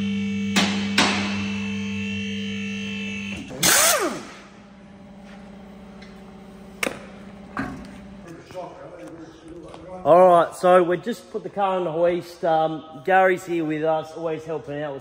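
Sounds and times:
electric pump motor humming: 3.5 - 4.4
air tool spinning down: 3.6 - 4.4.

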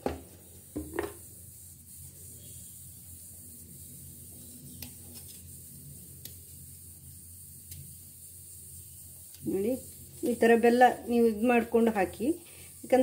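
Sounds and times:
knife scraping jaggery: 4.4 - 5.5.

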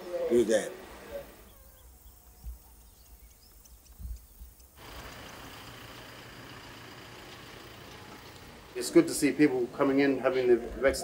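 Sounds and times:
steady low hum with hiss: 0.0 - 11.0
tiny high chirps: 1.4 - 8.6.

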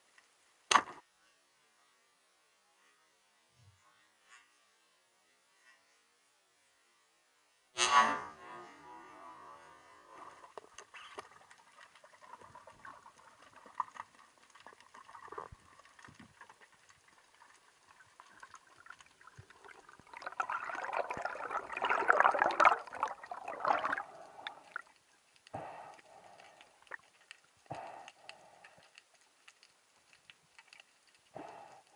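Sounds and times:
underwater clicks and crackle: 10.2 - 31.9
rushing bubbling water: 10.5 - 24.9.

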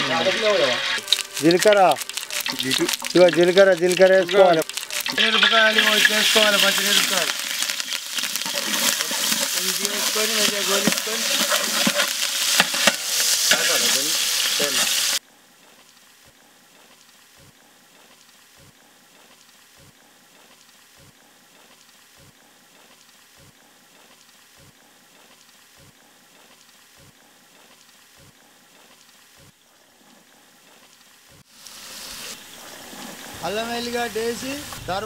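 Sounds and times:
chillies sizzling in hot oil: 0.0 - 15.2, 31.4 - 35.0
faint hiss: 0.0 - 29.5, 30.3 - 35.0.

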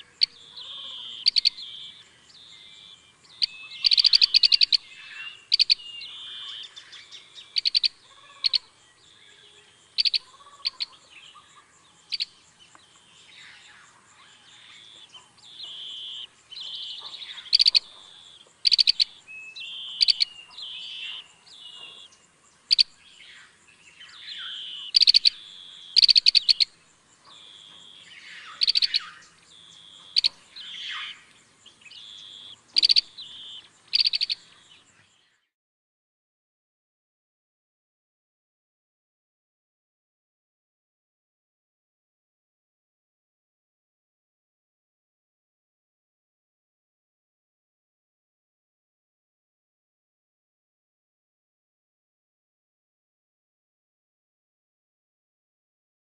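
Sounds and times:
birds rattling trills: 0.0 - 35.5.

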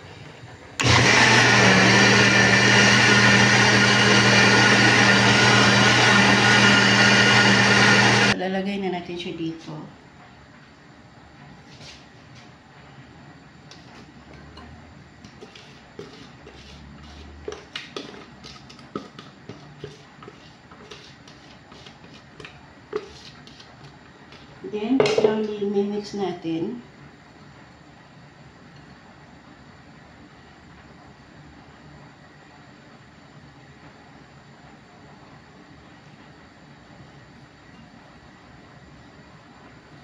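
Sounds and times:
electric blender running: 0.8 - 8.4.

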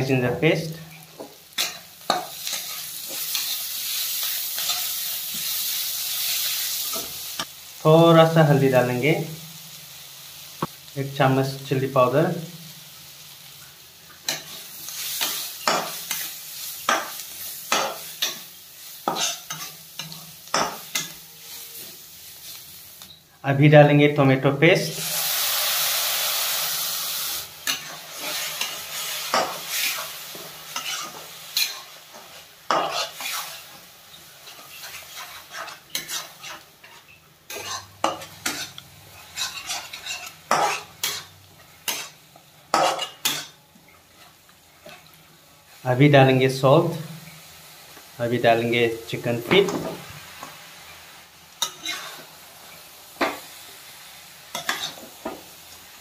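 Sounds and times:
food sizzling in oil: 0.0 - 23.4, 24.6 - 56.0
spatula scraping a wok: 1.2 - 7.5, 14.2 - 22.9, 25.0 - 45.8, 49.6 - 55.6.

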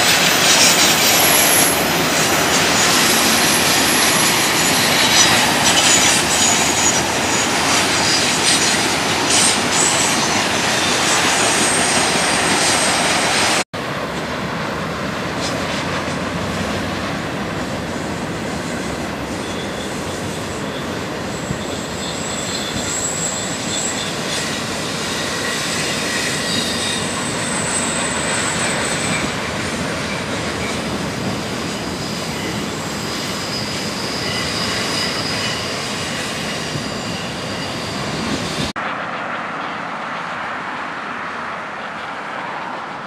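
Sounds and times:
high-pitched wheel squeal: 0.0 - 13.6, 18.5 - 38.7
train wheels rumbling on rail: 0.0 - 43.0.

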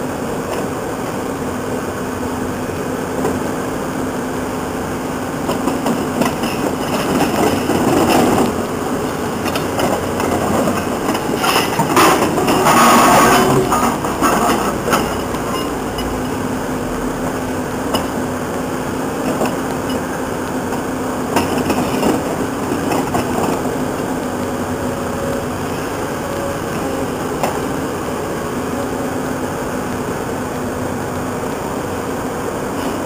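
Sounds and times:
excavator engine running: 0.0 - 33.0
scrap metal clanking: 9.4 - 16.3.

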